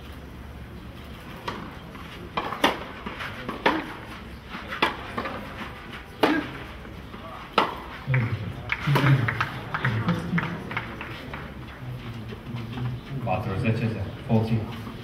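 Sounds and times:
tennis ball hit by racquets: 1.4 - 11.7.

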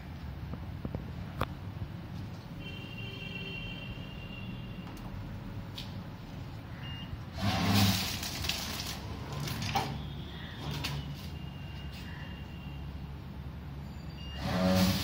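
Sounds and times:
machine rattling: 7.4 - 10.0.

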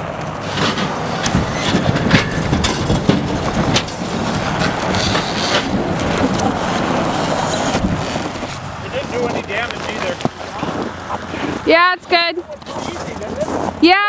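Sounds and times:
vehicle engine rumble: 0.0 - 13.9
shack frame knocking and clattering: 0.6 - 6.3.

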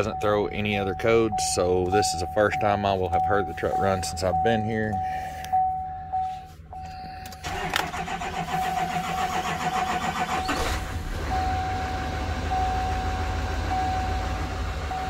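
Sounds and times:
diesel engine idling: 0.0 - 15.0
engine cranking on starter: 7.4 - 12.6.

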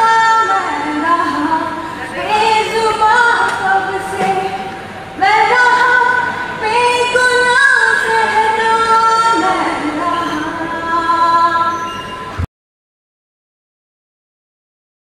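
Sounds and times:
woman singing into microphone: 0.0 - 12.0.

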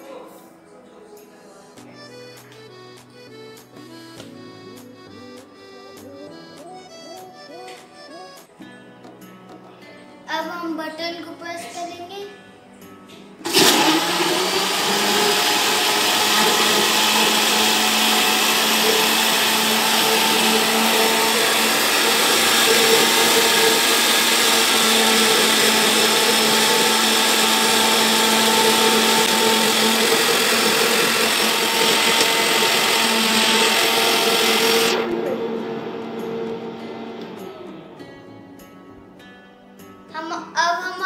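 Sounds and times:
blender motor running: 13.5 - 37.8.

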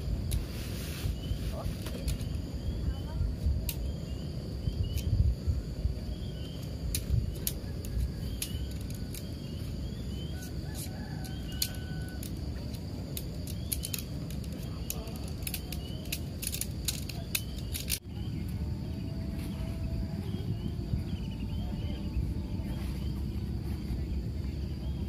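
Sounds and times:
high insect drone: 0.0 - 25.0
wind on microphone: 0.0 - 25.0
tent pole clicking and clinking: 6.4 - 18.0.

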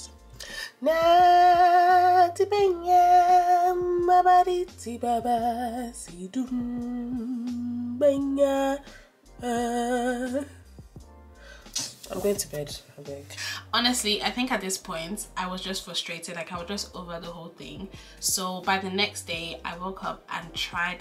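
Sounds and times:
woman singing with vibrato: 0.7 - 10.6.

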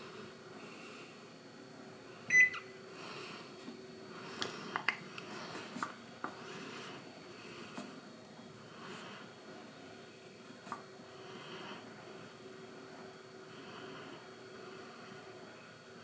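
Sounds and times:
microwave beep: 2.3 - 2.8.

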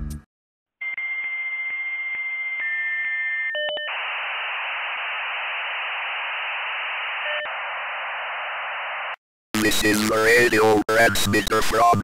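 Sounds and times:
radio static hiss: 3.9 - 12.0.

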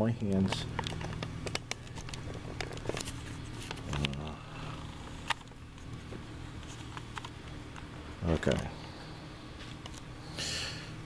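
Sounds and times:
low steady hum: 0.0 - 11.0
camera handling clicks and rubbing: 0.7 - 4.2, 5.2 - 6.0, 6.6 - 7.9.

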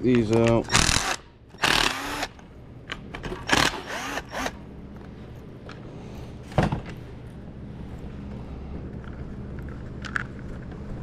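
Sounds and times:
steady low hum: 0.0 - 11.0
cordless drill whirring: 0.7 - 2.4, 3.4 - 4.6.

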